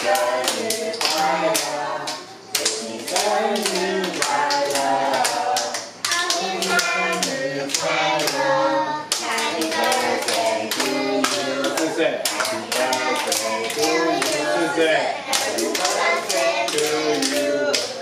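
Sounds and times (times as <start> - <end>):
people singing a birthday song: 0.0 - 18.0
people clapping in time: 9.1 - 14.5, 15.3 - 18.0.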